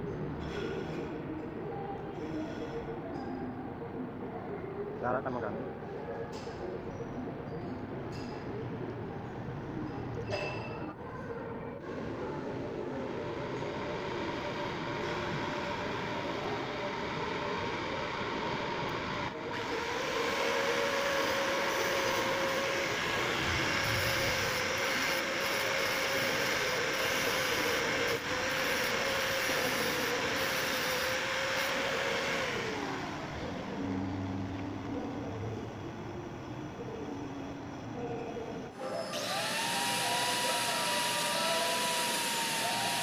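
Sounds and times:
angle grinder grinding steel: 0:19.6 - 0:33.1, 0:38.9 - 0:43.0.

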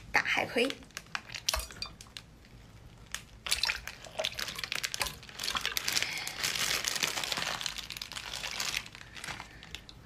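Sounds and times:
liquid dripping: 0:00.9 - 0:06.2
wet squelching and splatting: 0:00.9 - 0:10.0.

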